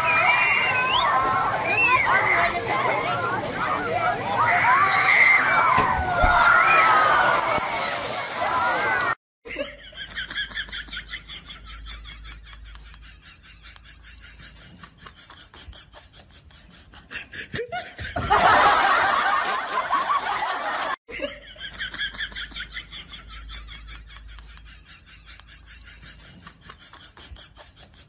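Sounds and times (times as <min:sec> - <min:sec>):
loud rush of noise: 0:00.0 - 0:09.2
snickering laughter: 0:09.5 - 0:28.0.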